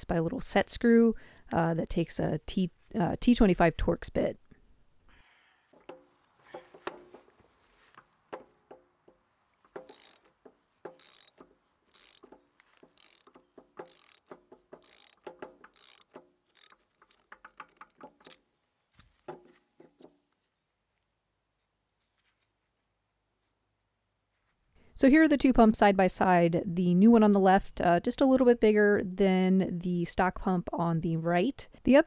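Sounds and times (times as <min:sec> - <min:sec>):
faint socket ratchet clicking: 0:09.7 - 0:10.3, 0:10.9 - 0:18.4.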